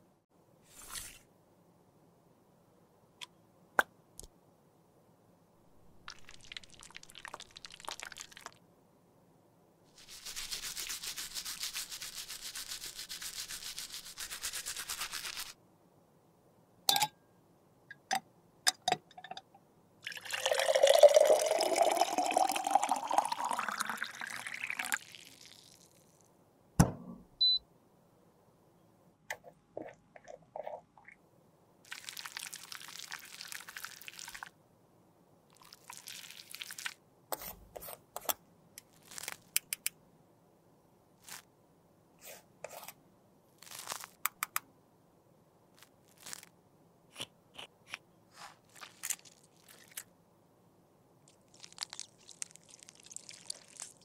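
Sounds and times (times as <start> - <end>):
liquid poured into container: 6.0 - 8.6, 20.0 - 26.2, 31.9 - 34.5, 35.5 - 37.0, 51.3 - 54.0
sharp knock: 26.8 - 27.2.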